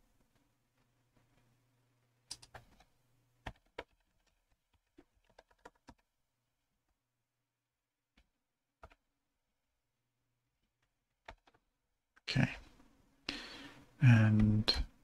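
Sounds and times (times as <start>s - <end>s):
typing on computer keyboard: 2.3s - 6.1s, 8.8s - 9.0s, 11.2s - 11.6s.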